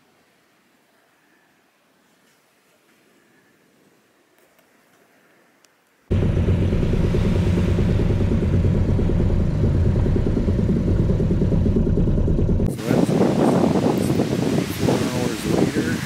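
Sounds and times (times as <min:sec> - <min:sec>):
outboard boat motor running: 0:06.1 - 0:13.8.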